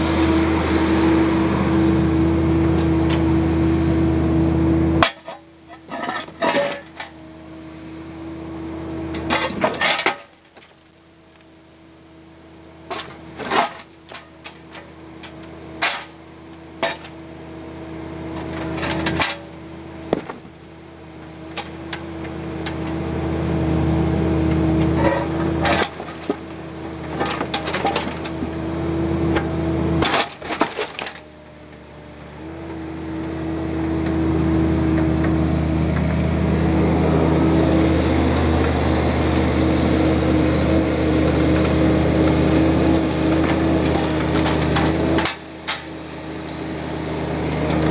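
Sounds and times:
diesel engine running: 0:00.0 - 0:47.9
hydraulic whine: 0:18.1 - 0:47.9.

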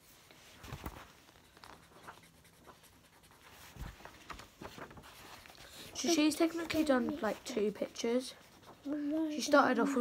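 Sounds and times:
pen scratching on paper: 0:01.8 - 0:03.7.

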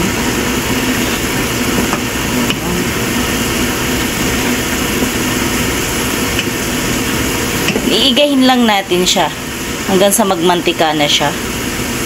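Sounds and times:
liquid bubbling in a pan: 0:00.1 - 0:08.0.

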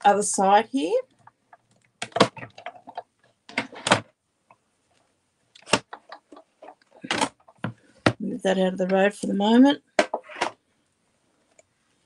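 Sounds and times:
plastic plates clunking and clattering: 0:01.2 - 0:04.2, 0:05.6 - 0:08.2, 0:09.9 - 0:10.6.

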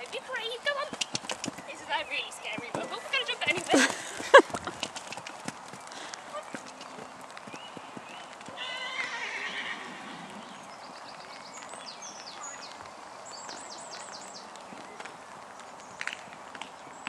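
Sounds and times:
horse whinnying: 0:08.6 - 0:10.5.

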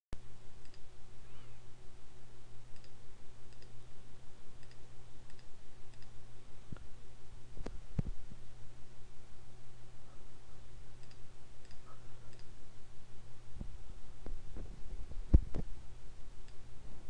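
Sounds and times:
steady low hum: 0:00.2 - 0:17.0
computer mouse clicking: 0:00.6 - 0:00.9, 0:02.7 - 0:03.8, 0:04.6 - 0:06.2, 0:11.0 - 0:12.6.

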